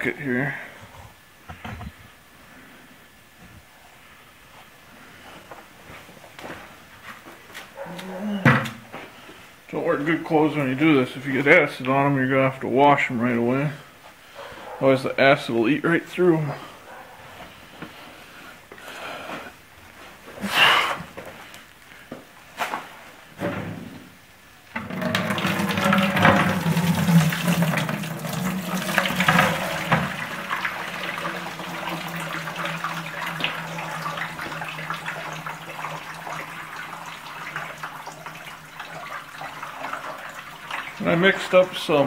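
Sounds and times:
liquid pouring into plastic bucket: 24.8 - 42.0.

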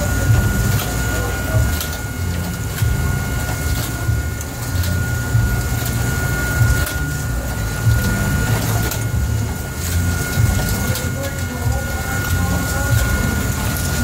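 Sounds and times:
hydraulic machinery whine: 0.0 - 14.0.

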